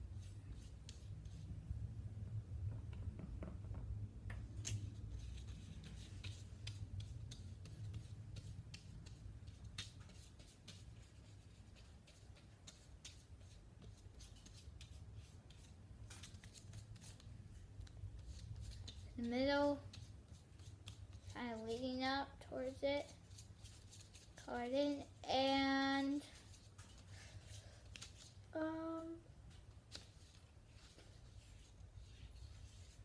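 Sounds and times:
paintbrush scratching on paper: 5.1s - 17.3s, 30.2s - 33.0s.

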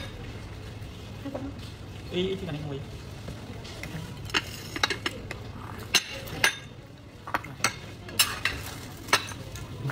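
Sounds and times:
cutlery clinking on porcelain: 4.2s - 9.9s.

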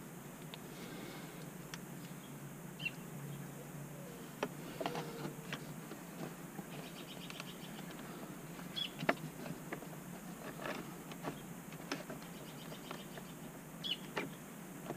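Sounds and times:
faint bird chirp: 2.1s - 5.6s, 6.6s - 8.0s, 8.7s - 9.0s, 12.2s - 14.5s.

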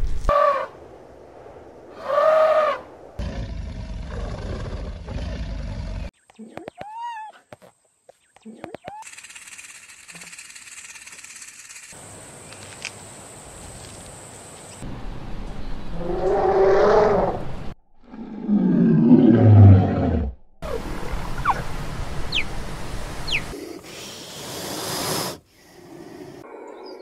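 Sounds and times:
lion roaring: 16.0s - 20.8s.

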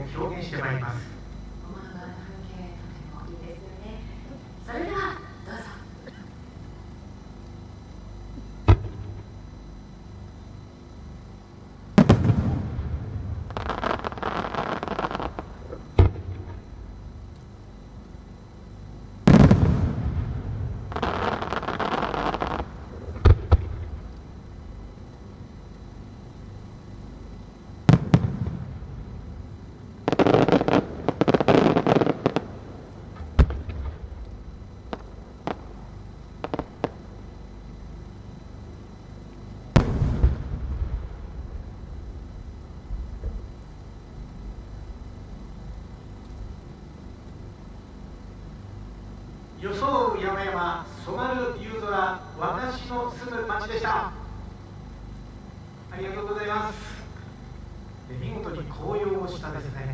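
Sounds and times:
firework stars crackling: 12.0s - 16.6s, 19.2s - 24.1s, 30.0s - 35.8s, 36.4s - 37.1s, 39.8s - 43.5s
low rumbling echo: 19.3s - 20.9s, 39.8s - 45.6s
fireworks pops: 36.4s - 37.0s.

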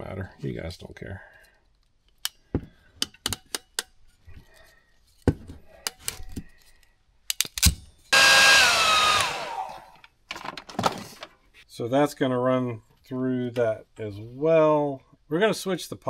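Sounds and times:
heat gun blowing: 8.1s - 10.0s.

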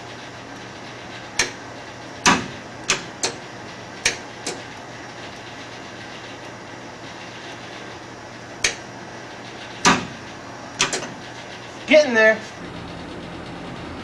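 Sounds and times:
sharp clicks and clunks: 1.4s - 1.6s, 2.2s - 3.4s, 4.0s - 4.7s, 8.6s - 8.8s, 10.8s - 11.3s.

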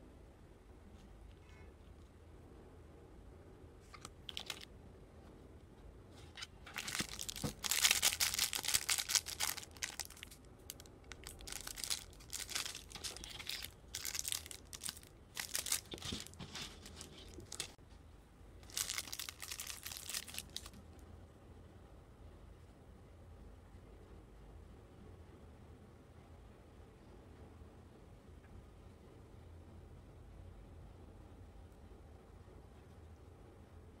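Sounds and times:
plastic wrapping crinkling: 4.2s - 4.7s, 6.3s - 17.8s, 18.6s - 20.8s.

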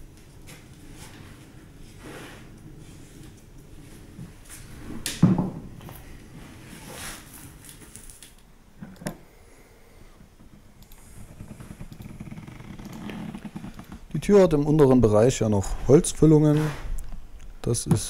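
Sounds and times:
roller spreading glue: 0.8s - 5.0s, 15.6s - 17.0s.

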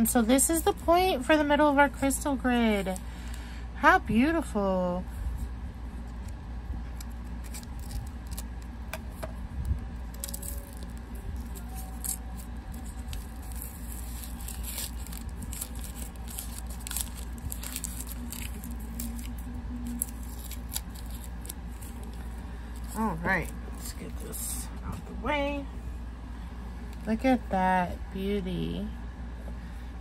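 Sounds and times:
packaging crinkling and rustling: 6.0s - 24.4s.

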